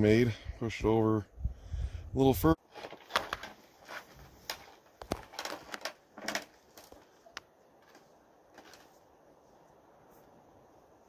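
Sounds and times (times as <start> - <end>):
rifle handling clicks and knocks: 2.7 - 9.0.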